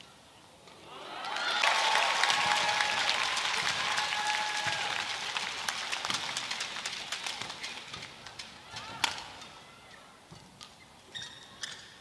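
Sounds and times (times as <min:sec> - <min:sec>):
crowd applause: 0:00.9 - 0:07.6
shoes squeaking on court: 0:09.9 - 0:12.0.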